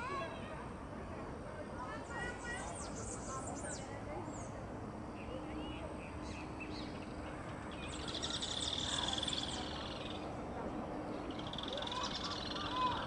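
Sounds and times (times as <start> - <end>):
buzzy rattling bird calls: 6.1 - 10.3, 11.1 - 13.0.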